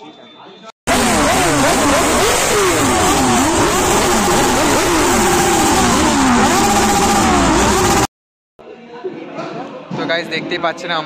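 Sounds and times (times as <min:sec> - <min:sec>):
motorcycle engines revving: 0:00.9 - 0:08.1.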